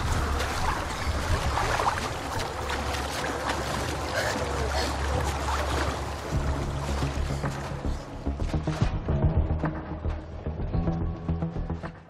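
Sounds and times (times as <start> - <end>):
stream running over rocks: 0.0 - 8.4.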